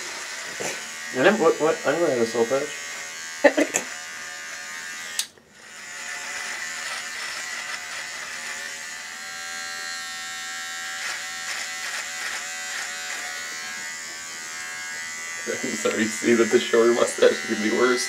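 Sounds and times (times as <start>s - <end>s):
beard trimmer buzzing: 0.0s - 18.0s
trimmer click: 5.1s - 5.4s.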